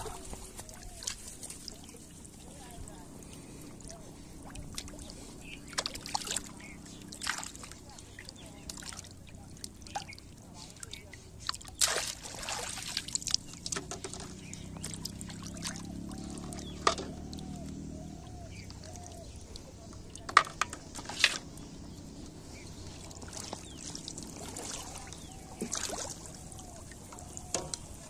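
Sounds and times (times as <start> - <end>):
low steady hum: 0.0 - 28.0
water splashing and trickling: 0.0 - 28.0
fish and bottles knocking on metal basin: 16.8 - 17.2.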